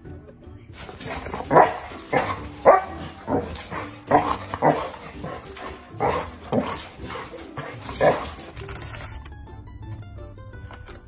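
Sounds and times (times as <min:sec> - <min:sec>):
dog barking: 0:00.8 - 0:08.5.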